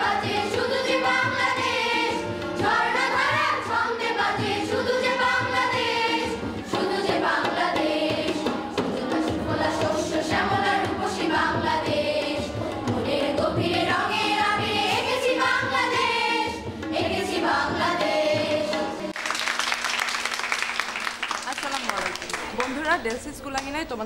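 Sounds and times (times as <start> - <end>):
children's choir singing: 0.0 - 19.2
rhythmic drum backing: 0.0 - 24.0
people clapping: 19.1 - 23.9.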